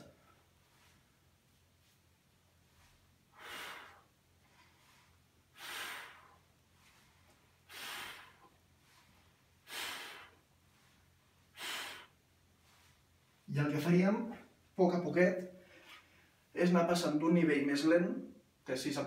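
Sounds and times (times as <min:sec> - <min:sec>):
man exhaling forcefully: 0:03.3 - 0:04.2, 0:05.5 - 0:06.5, 0:07.7 - 0:08.5, 0:09.6 - 0:10.4, 0:11.6 - 0:12.2.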